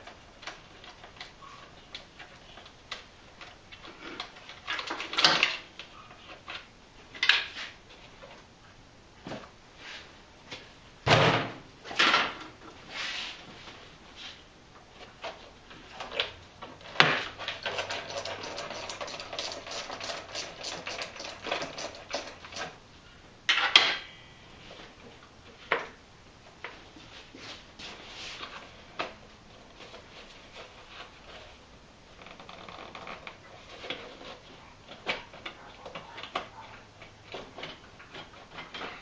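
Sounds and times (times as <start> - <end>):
rapid clicking and rattling: 15.9 - 22.8.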